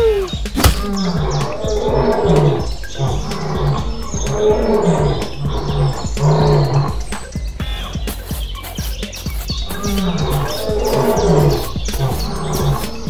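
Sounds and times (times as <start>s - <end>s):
birds chirping: 0.0s - 13.0s
lion roaring: 0.5s - 7.3s, 9.6s - 13.0s.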